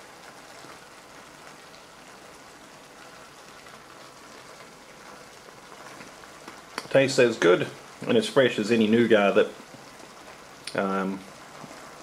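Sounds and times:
food sizzling in can: 0.0 - 12.0.

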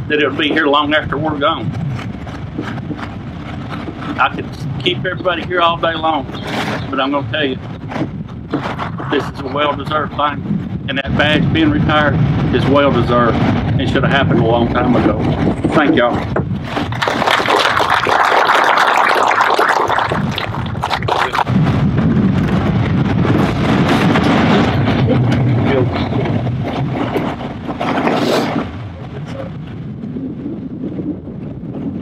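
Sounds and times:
wind rumble on microphone: 0.0 - 32.0
audience applauding: 16.9 - 21.5.

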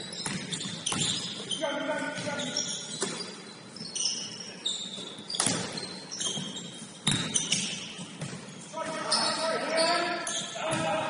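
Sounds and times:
sneaker squeaks: 0.0 - 11.0
basketball bouncing on wooden floor: 5.4 - 8.4.

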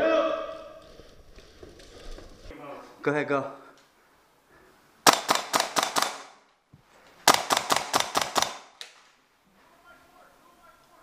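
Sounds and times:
airsoft gun shots: 5.1 - 6.4, 7.2 - 9.0.

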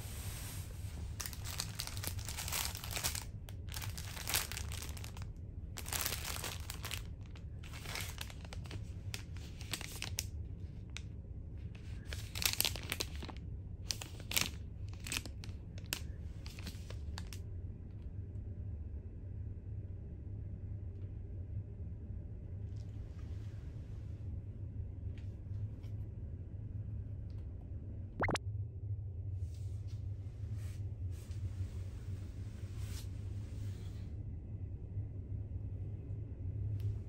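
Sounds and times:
steady low hum: 0.0 - 37.0
plastic packaging crinkling: 1.1 - 10.3, 11.9 - 17.4.

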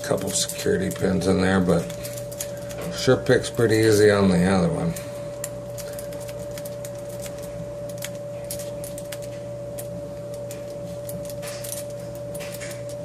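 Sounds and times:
steady hum: 0.0 - 13.0.

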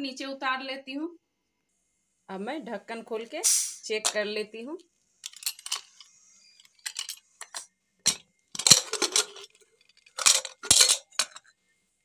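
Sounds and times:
knife clinking on metal lid: 10.2 - 11.5.

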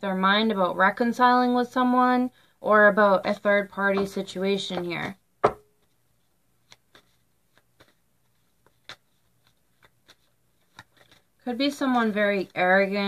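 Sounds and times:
card tapping on table: 3.9 - 5.8.

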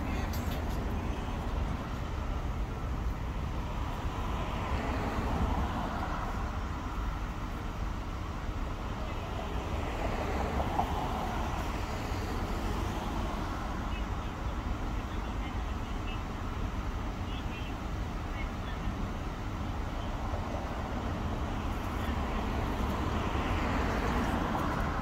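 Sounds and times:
cars passing on street: 0.0 - 25.0.

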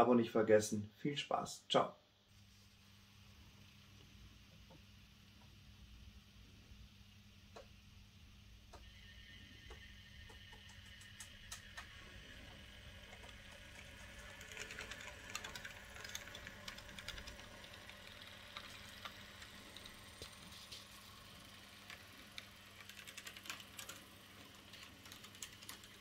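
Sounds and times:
model train wheels clicking: 8.7 - 26.0.

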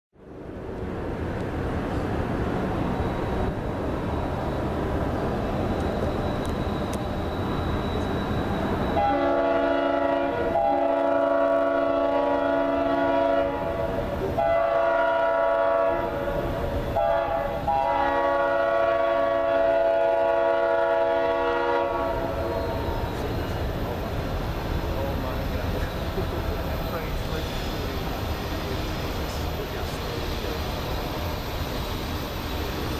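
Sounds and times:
low train rumble: 0.2 - 32.9
locomotive air horn chord: 8.9 - 16.2, 16.9 - 22.8.

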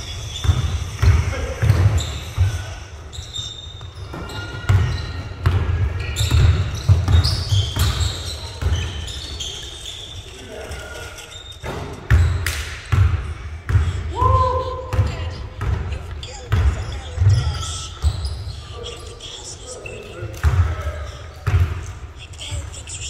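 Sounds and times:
indistinct echoing voices: 0.0 - 9.7, 13.0 - 23.0
shoe squeaks: 0.0 - 12.8, 15.0 - 22.7
basketball bouncing on gym floor: 0.3 - 2.7, 3.7 - 9.2, 11.6 - 18.6, 20.3 - 22.0.

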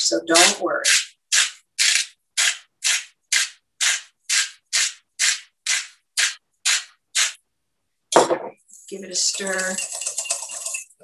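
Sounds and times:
salt grinder grinding: 0.3 - 7.4, 8.9 - 11.0.

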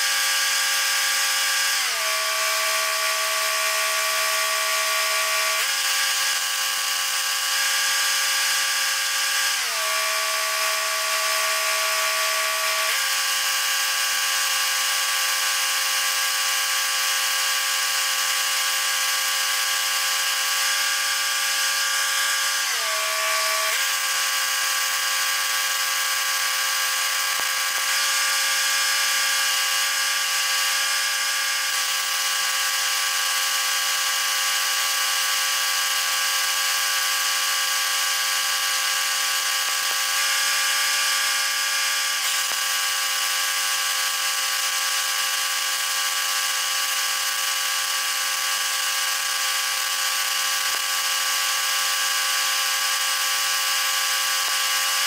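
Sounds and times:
welding machine hum: 0.0 - 55.0
welding arc hiss and crackle: 27.3 - 29.3, 47.6 - 51.2.

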